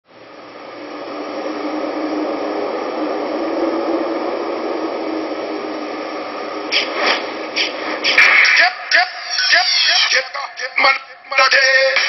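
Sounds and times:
faint low drone: 0.1s - 7.6s
steady hissing noise: 0.1s - 12.0s
sharp hits: 6.7s - 10.0s.

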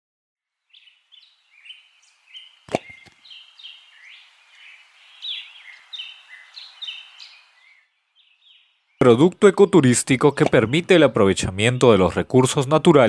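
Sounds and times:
birds chirping and whistling: 0.7s - 12.6s
steady hiss: 2.0s - 7.6s
sharp knocks: 2.7s - 3.1s.

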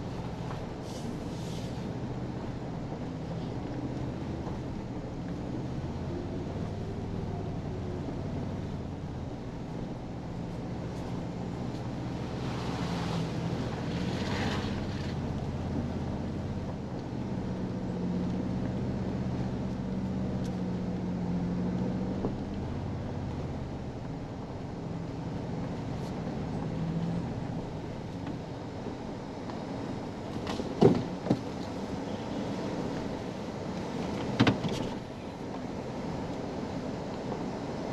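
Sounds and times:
truck engine hum: 0.0s - 37.9s
brief hiss: 0.8s - 1.9s.

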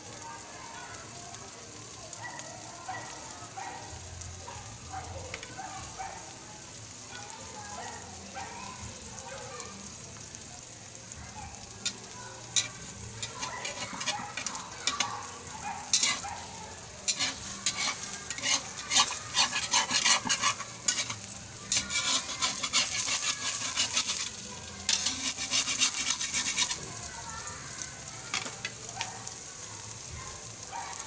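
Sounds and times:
eggs frying in hot oil: 0.0s - 31.0s
metal spatula scraping pan: 11.8s - 26.8s.

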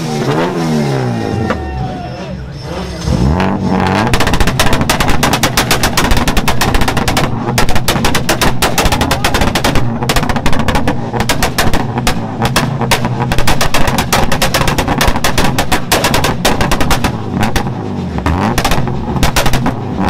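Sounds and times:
exhaust pops and bangs: 3.3s - 20.0s.

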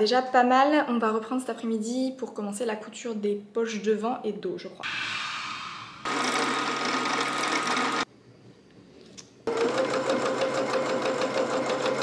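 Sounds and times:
sewing machine stitching: 6.1s - 8.0s, 9.5s - 12.0s.

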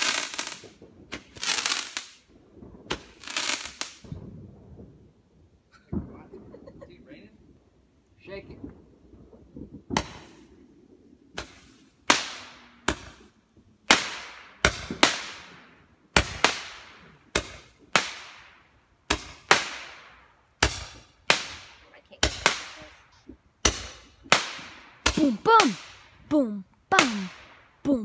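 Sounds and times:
fireworks bangs echoing: 0.0s - 4.4s, 9.8s - 10.5s, 11.3s - 26.3s, 26.9s - 27.9s.

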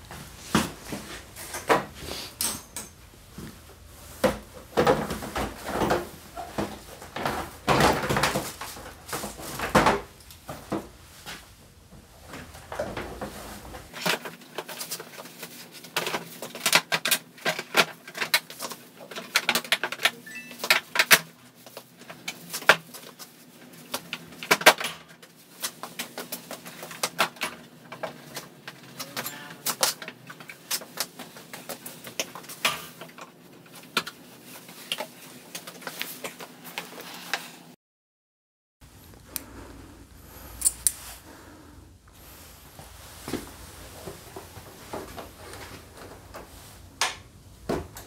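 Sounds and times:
plastic panels clicking and rattling: 15.9s - 21.4s.

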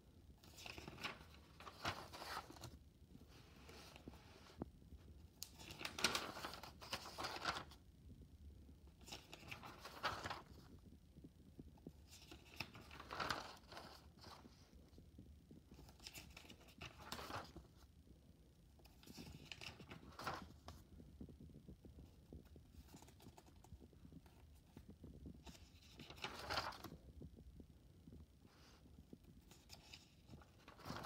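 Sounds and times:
notebook pages turning: 0.4s - 4.6s, 5.4s - 7.8s, 9.0s - 10.7s, 12.0s - 14.7s, 15.8s - 17.8s, 18.8s - 20.8s, 22.0s - 27.0s, 29.4s - 31.0s.

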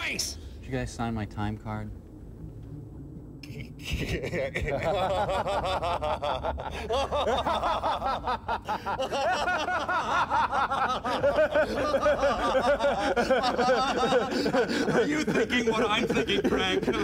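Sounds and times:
men laughing: 3.7s - 17.0s.

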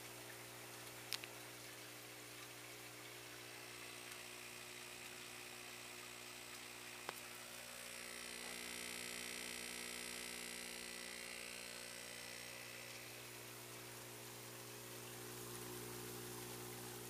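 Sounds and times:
soft hiss: 0.0s - 17.0s
air pump humming: 1.2s - 17.0s.

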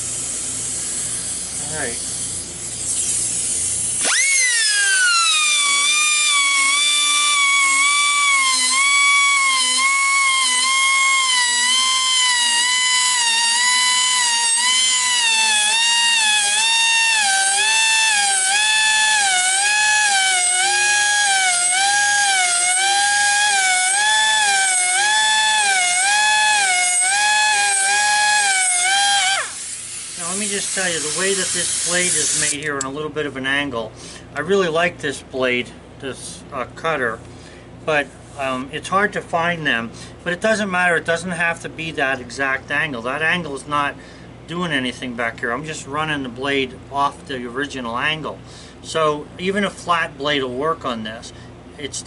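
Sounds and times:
rotary grinder whining: 2.9s - 32.6s.

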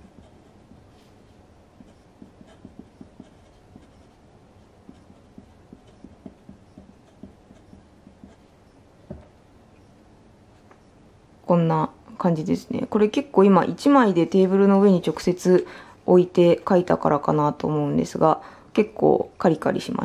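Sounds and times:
fountain pen scratching on paper: 0.0s - 8.5s
soft knock: 9.1s - 9.4s.

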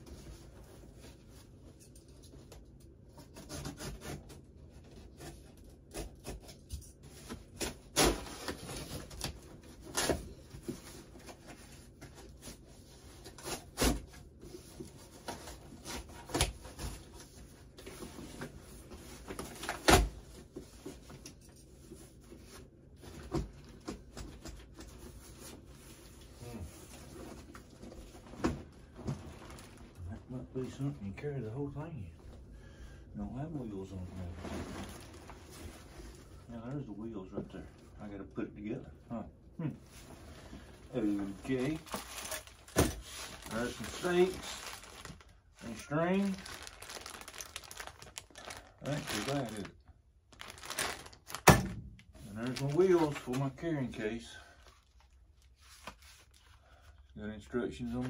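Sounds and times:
cardboard rubbing and rustling: 46.2s - 49.7s.

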